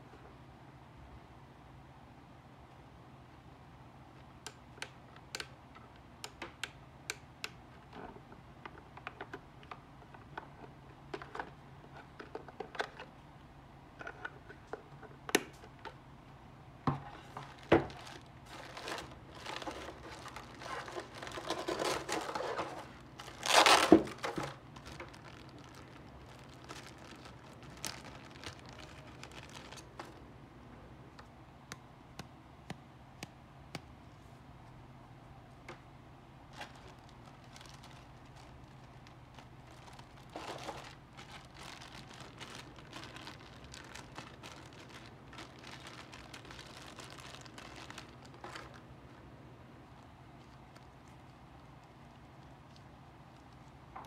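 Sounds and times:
plastic bag crinkling: 17.1s - 30.2s, 36.5s - 49.2s, 49.8s - 54.0s.

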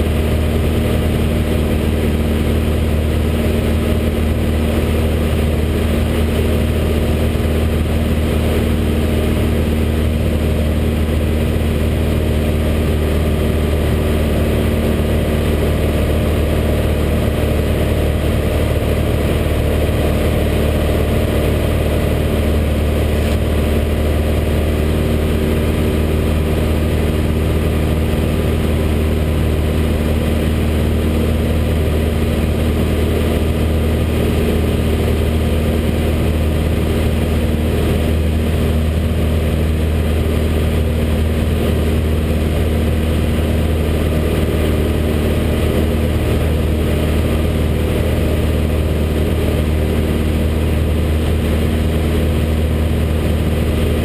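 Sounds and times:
light aircraft engine drone: 0.0s - 54.0s.

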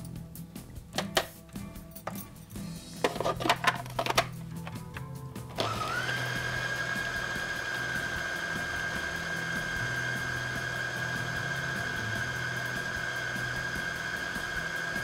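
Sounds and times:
electric food chopper whining: 5.5s - 15.0s.

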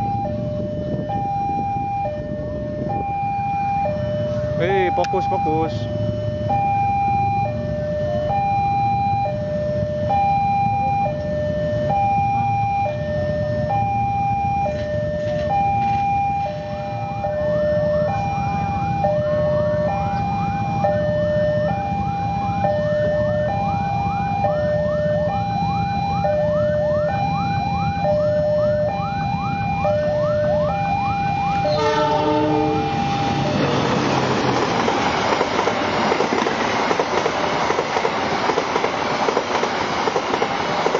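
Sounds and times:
train wheels on rails: 14.6s - 16.9s, 31.5s - 40.9s
train horn: 31.5s - 33.6s.

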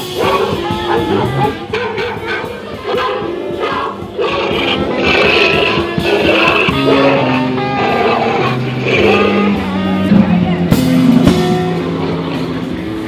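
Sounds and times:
music of held notes: 0.0s - 13.0s.

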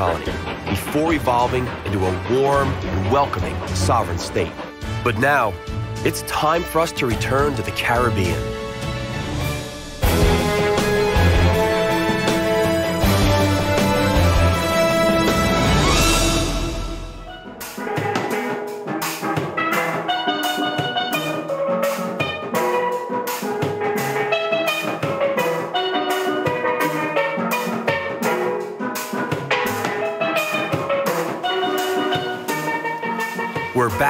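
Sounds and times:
drum beat: 0.0s - 5.8s.

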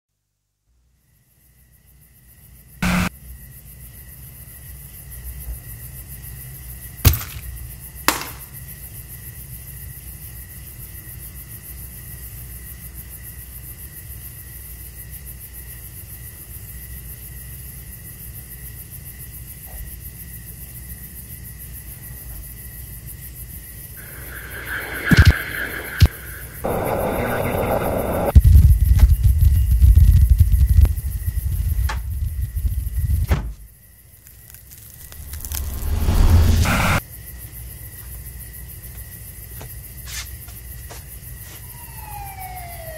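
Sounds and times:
low drone and hiss: 2.8s - 3.1s, 24.0s - 28.4s
sharp knocks: 8.1s - 8.5s
thin high tone: 24.0s - 28.3s.

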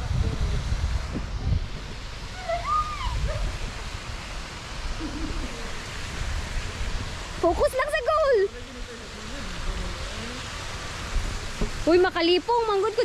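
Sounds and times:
outdoor hiss: 0.0s - 13.0s
wind noise on microphone: 0.0s - 13.0s
faint short calls: 2.3s - 3.6s.

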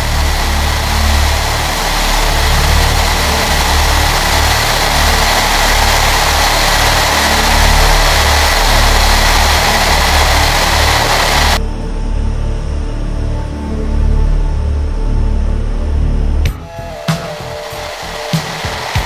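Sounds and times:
air rushing over canopy: 0.0s - 11.6s, 17.3s - 19.0s
aircraft radial engine drone: 0.0s - 19.0s.

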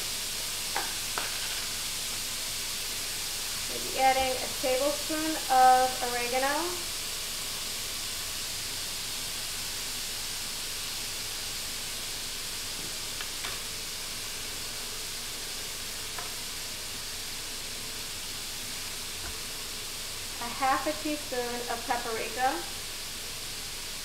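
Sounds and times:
meat sizzling in a skillet: 0.0s - 24.0s.

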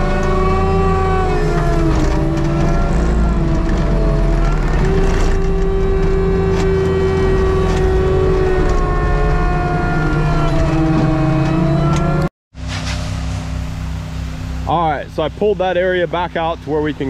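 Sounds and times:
mulcher head whining: 0.0s - 12.3s
diesel engine rumbling: 0.0s - 17.0s.

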